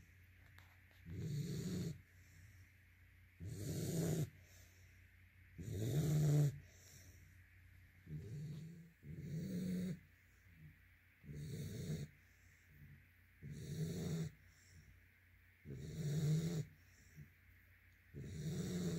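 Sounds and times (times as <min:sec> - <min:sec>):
puppy snoring: 0:00.0 - 0:02.6, 0:03.4 - 0:04.8, 0:05.5 - 0:07.2, 0:08.0 - 0:14.9, 0:15.6 - 0:17.3, 0:18.1 - 0:18.9.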